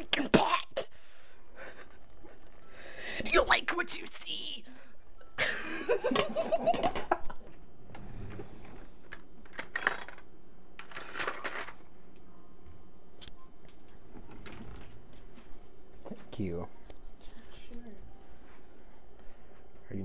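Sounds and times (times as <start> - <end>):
cutlery clinking in a drawer: 9.5 - 11.8.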